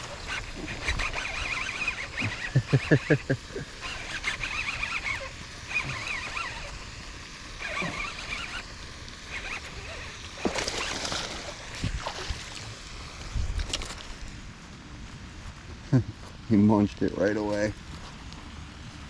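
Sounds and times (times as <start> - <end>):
fish splashing at water surface: 7.7 - 13.0.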